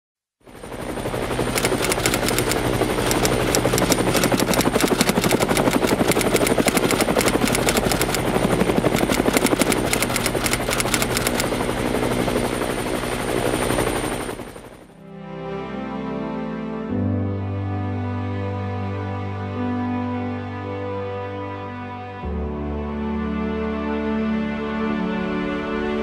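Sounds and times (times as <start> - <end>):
helicopter engine drone: 0.4 - 15.0
helicopter rotor chopping: 0.5 - 14.9.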